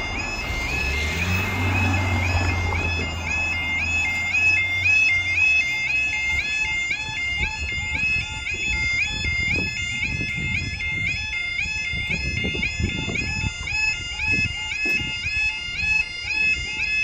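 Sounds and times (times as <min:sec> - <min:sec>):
vehicle engine humming: 0:00.0 - 0:10.7
level crossing alarm warbling: 0:00.0 - 0:17.0.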